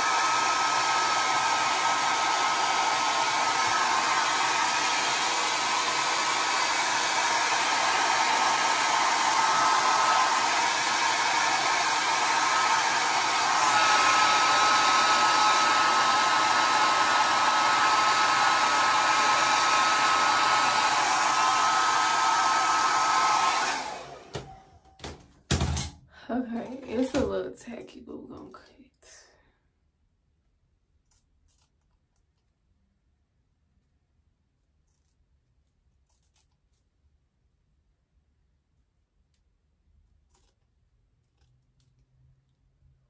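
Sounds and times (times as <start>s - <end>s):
hair dryer running with high whine: 0.0s - 25.9s, 26.7s - 27.3s.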